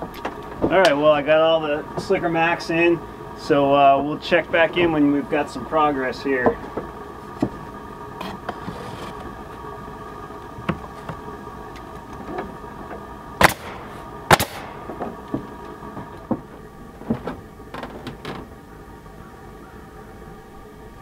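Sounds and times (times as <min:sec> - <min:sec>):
air compressor humming: 0:00.0 - 0:21.0
pneumatic nail gun firing: 0:13.4 - 0:15.0.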